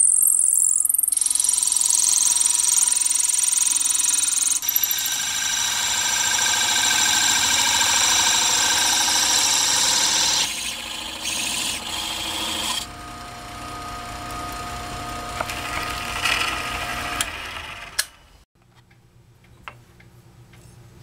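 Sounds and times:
drill press whine: 0:00.0 - 0:18.3
drill bit rasping through wood: 0:01.0 - 0:17.4.

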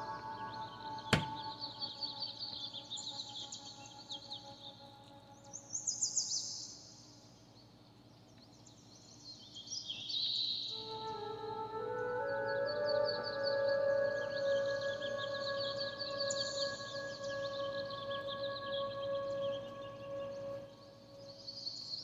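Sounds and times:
small birds chirping: 0:00.0 - 0:22.0
soft sustained music tones: 0:00.0 - 0:22.0.

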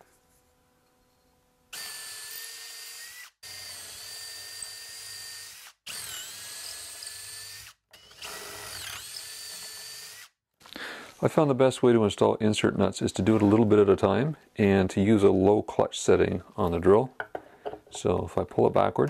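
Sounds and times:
power drill boring into wood: 0:01.7 - 0:10.3.

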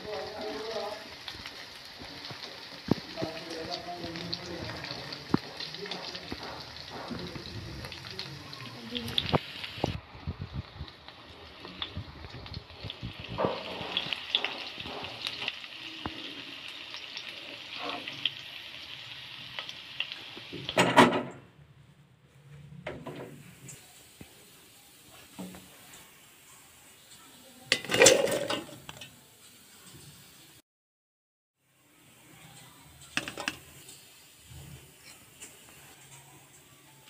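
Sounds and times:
cheese cubes sizzling in oil: 0:00.0 - 0:20.9, 0:23.1 - 0:30.6, 0:31.6 - 0:37.0
spatula tapping and scraping pan: 0:33.1 - 0:34.0.

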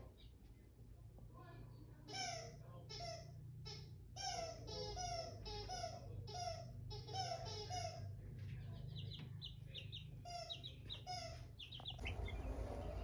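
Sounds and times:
chicks peeping: 0:04.6 - 0:13.0.

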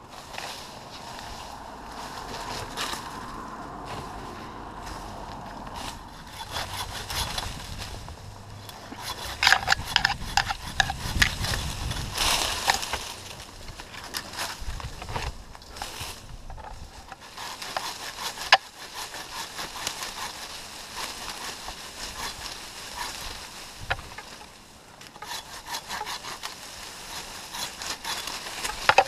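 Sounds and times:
hand saw cutting wood: 0:05.8 - 0:13.2, 0:16.6 - 0:24.4, 0:25.1 - 0:29.0.

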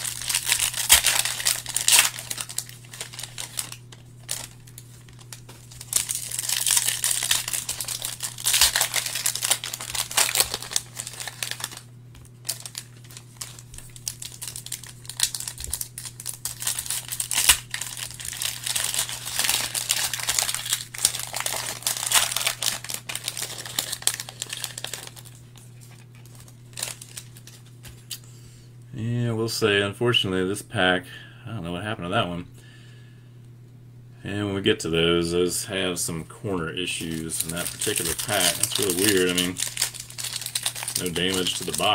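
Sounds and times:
foil wrappers crinkling and tearing: 0:00.0 - 0:28.2, 0:36.8 - 0:41.9.

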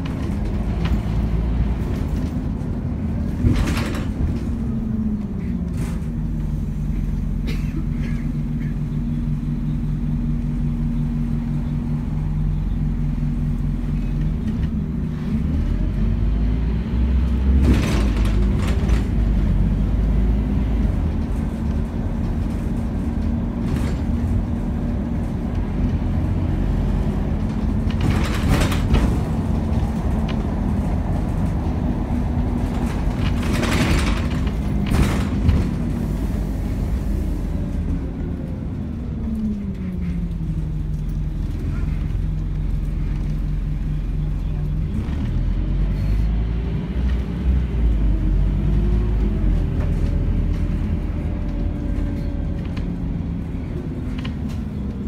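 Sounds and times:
bus diesel engine running: 0:00.0 - 0:55.0.

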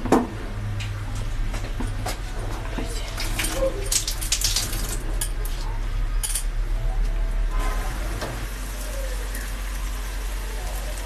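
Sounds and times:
batter frying sizzle: 0:07.6 - 0:11.0.

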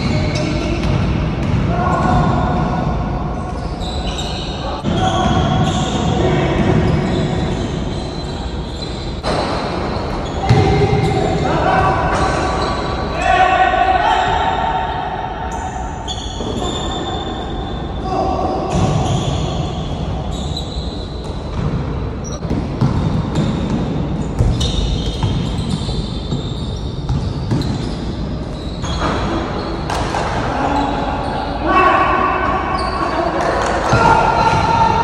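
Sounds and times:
basketball bouncing on court: 0:00.0 - 0:02.9, 0:09.2 - 0:11.2, 0:21.4 - 0:28.1
players calling out: 0:29.9 - 0:35.0.

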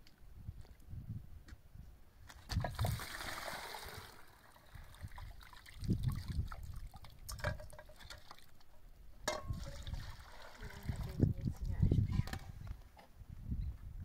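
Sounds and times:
water trickling: 0:02.7 - 0:08.7, 0:09.5 - 0:11.8.

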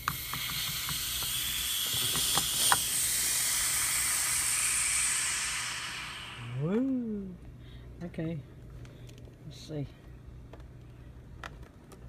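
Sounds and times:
air hissing into canister: 0:00.0 - 0:07.2.

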